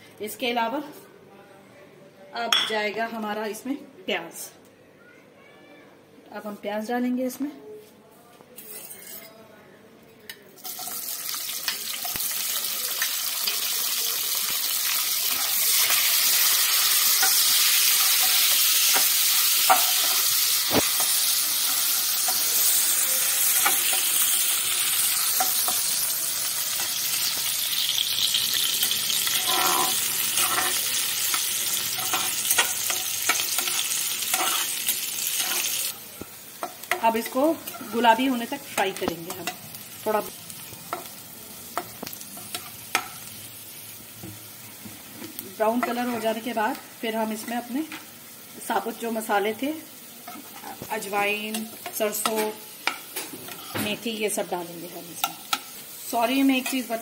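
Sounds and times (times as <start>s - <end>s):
onions sizzling in oil: 10.6s - 57.0s
metal spatula scraping pan: 28.8s - 30.9s, 53.5s - 53.8s.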